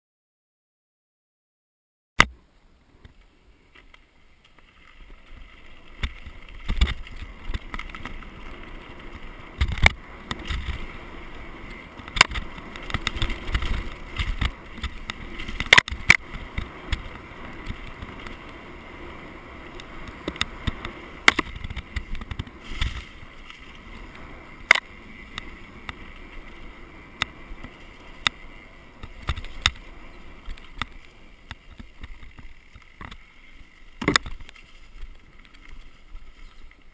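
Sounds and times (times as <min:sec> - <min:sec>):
tyres rushing on dirt: 0:03.8 - 0:36.9
bike knocks and clatters: 0:05.1 - 0:11.0, 0:11.7 - 0:18.5, 0:19.7 - 0:23.8, 0:29.0 - 0:33.3, 0:33.9 - 0:35.8.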